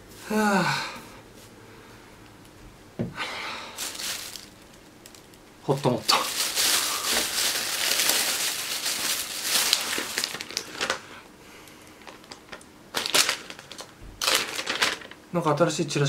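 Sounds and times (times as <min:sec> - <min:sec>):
plastic bag rustling: 0:03.6 - 0:11.3, 0:11.9 - 0:15.3.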